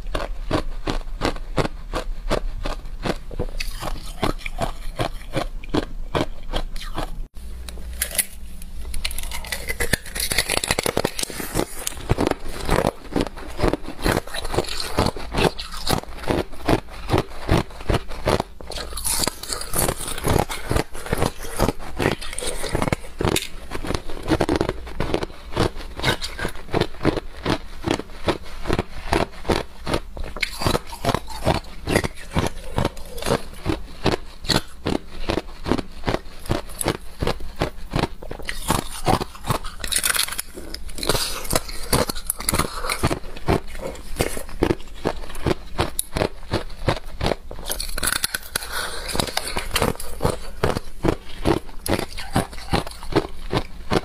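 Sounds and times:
ice being crunched: 9.0s - 17.6s, 38.5s - 45.6s.

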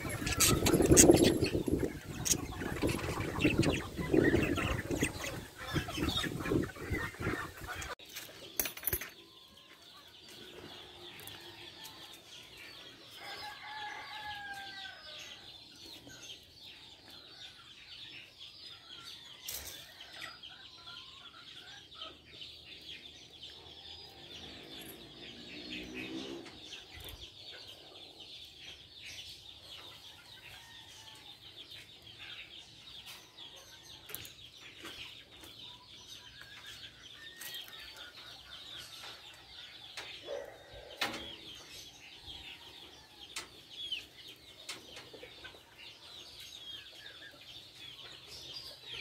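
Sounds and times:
budgerigars twittering: 0.0s - 8.0s.

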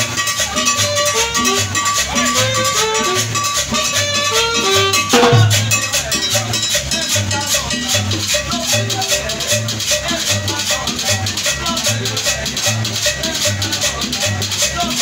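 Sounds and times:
low drum beat: 5.1s - 6.2s.

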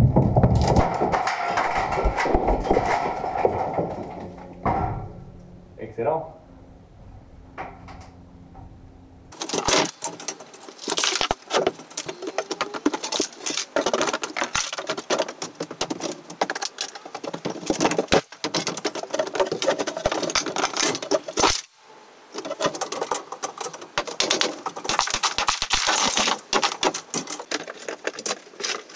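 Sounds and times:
wooden planks clattering: 0.0s - 5.4s, 9.3s - 21.7s, 22.3s - 28.9s.

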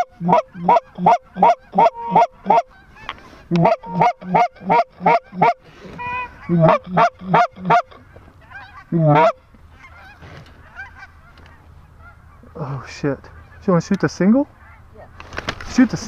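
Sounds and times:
goose calls clucking and honking: 0.0s - 12.7s.

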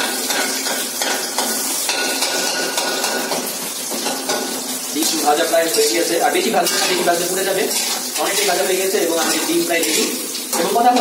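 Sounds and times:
egg sizzling in hot oil: 0.0s - 11.0s
metal spatula scraping a pan: 6.6s - 8.2s.

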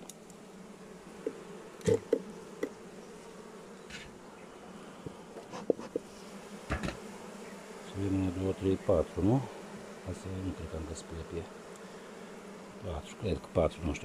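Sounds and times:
bee colony humming: 0.0s - 14.0s
knocks on hive box: 1.2s - 2.8s, 6.7s - 7.1s.

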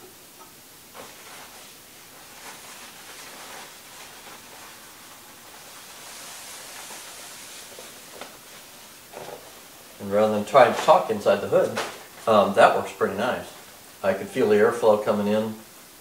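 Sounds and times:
hood crinkling rustle: 0.9s - 15.4s.

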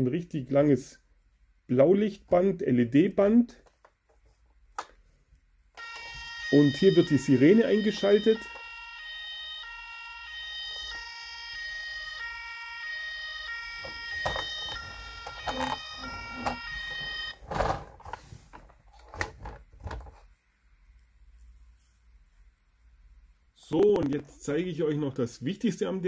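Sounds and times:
toy two-tone siren: 5.8s - 17.4s.

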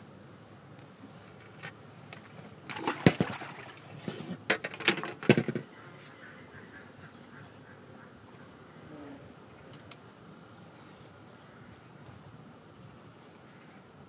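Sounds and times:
sharp knocks and clatters: 4.4s - 5.7s.

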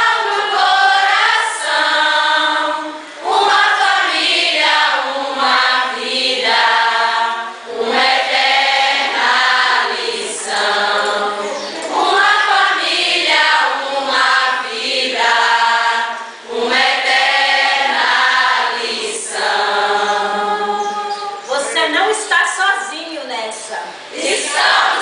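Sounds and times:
young voices singing as choir: 0.0s - 21.8s, 24.0s - 25.0s.

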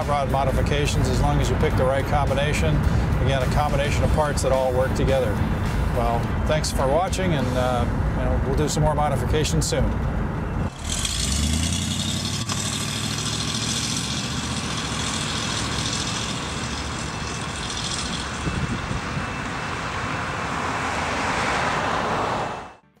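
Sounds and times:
road traffic noise: 0.0s - 22.9s
car engine running: 10.3s - 20.5s.

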